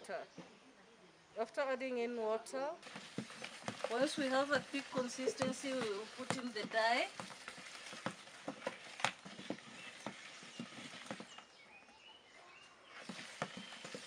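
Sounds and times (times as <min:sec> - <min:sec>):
wooden stick knocking in plastic basin: 0:02.8 - 0:09.6.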